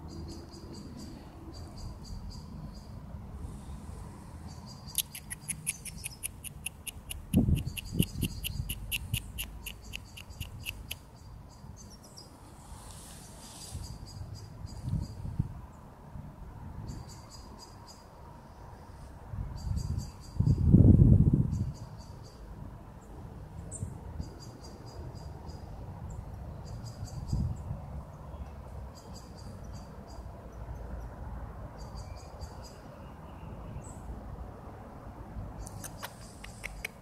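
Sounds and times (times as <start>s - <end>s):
crickets chirping: 0.0s - 12.2s.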